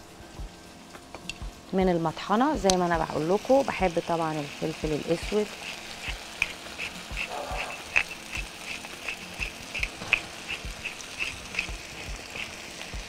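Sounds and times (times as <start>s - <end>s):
pepper mill grinding: 2.6s - 13.0s.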